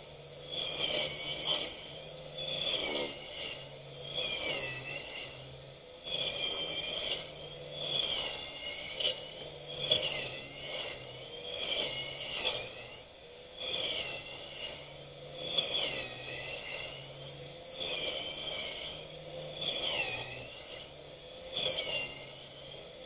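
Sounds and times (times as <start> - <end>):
electric grass cutter motor running: 13.6 - 23.0.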